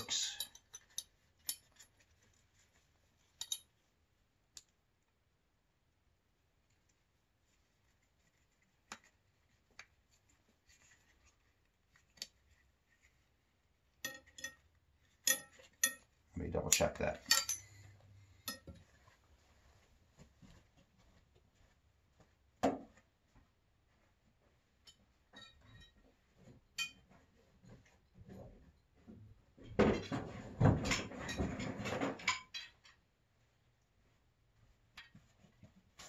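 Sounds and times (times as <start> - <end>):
clicks and clinks of metal fittings: 0.0 - 2.0, 3.3 - 3.8, 14.0 - 14.6, 15.2 - 16.1, 16.7 - 18.8.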